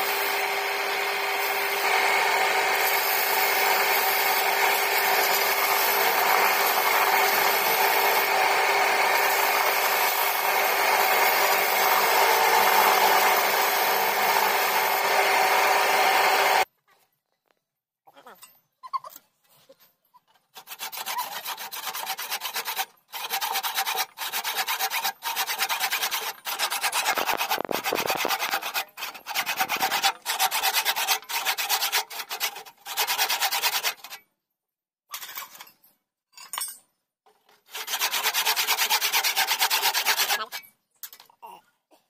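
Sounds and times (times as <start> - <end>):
block rasping on spinning wood: 0.1 - 16.6, 20.6 - 34.1, 37.7 - 40.6.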